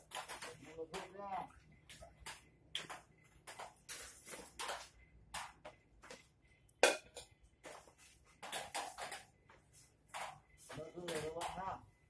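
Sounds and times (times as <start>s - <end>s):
metal pots clattering: 6.8s - 7.3s.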